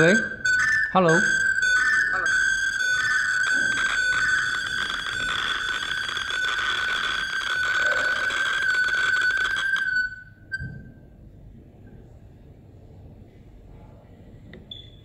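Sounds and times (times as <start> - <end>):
high-pitched audio feedback whistle: 0.0 - 11.0.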